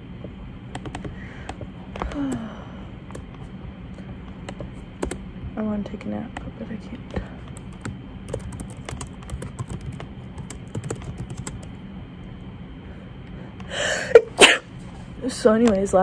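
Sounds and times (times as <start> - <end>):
computer keyboard typing: 0.7 - 1.2, 4.5 - 5.2, 7.4 - 11.7.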